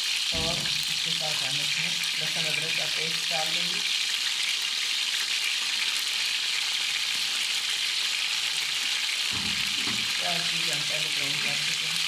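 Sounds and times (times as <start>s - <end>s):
chicken frying in a pot: 0.0s - 12.0s.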